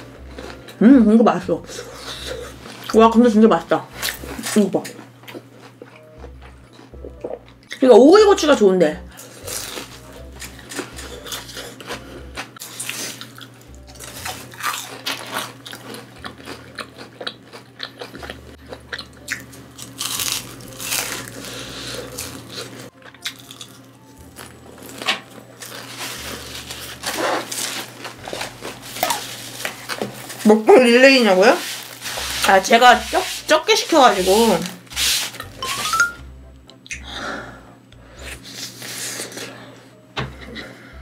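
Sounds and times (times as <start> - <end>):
crunching bites and chewing: 9.2 - 30.4.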